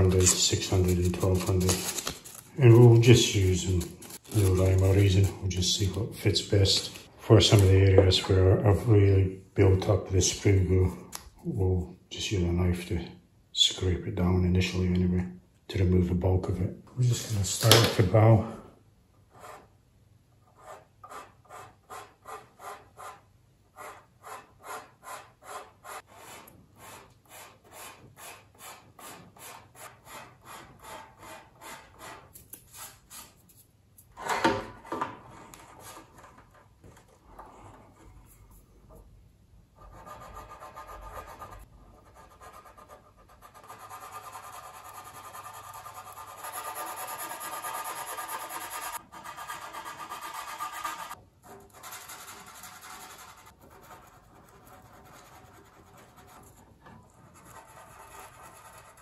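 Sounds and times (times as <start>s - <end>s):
hand tool rubbing plastic: 0.0s - 5.9s, 43.5s - 59.0s.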